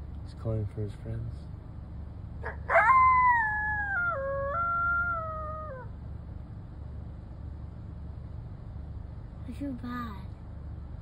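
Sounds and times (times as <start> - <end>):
coyote howling: 2.4 - 6.0.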